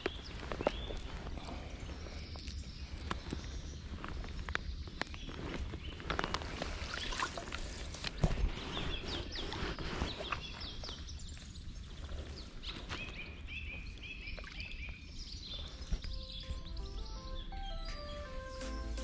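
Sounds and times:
bird singing: 8.2s - 19.0s.

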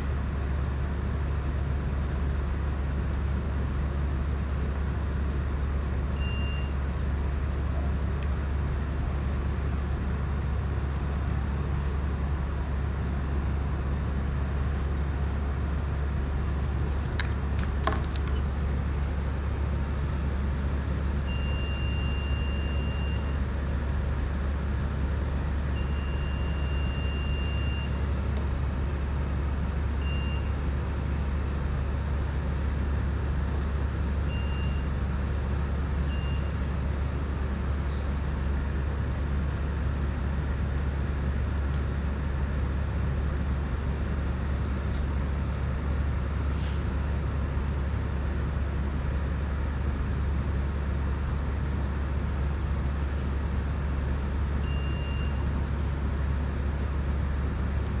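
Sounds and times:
steady low hum: 0.0s - 58.0s
multimeter continuity beeps: 6.2s - 6.8s, 21.3s - 23.4s, 25.8s - 28.0s, 30.0s - 30.5s, 34.3s - 34.8s, 36.1s - 36.6s, 54.6s - 55.4s.

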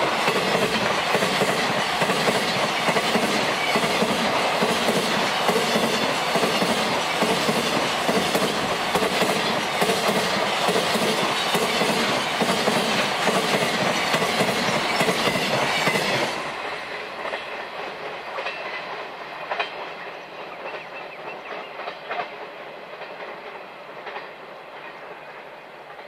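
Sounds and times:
wheels clickety-clack: 0.0s - 25.2s
freight train wagons rolling: 0.0s - 26.0s
clicks from rail joints: 21.8s - 24.9s.

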